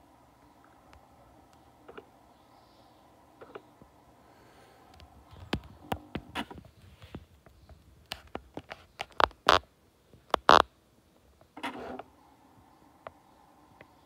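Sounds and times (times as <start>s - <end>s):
autofocus lens whirr: 0.0s - 9.4s.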